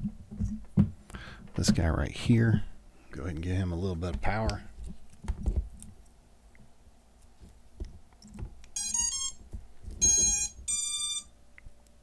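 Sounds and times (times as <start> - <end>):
quadcopter motors beeping: 10.0 - 11.3.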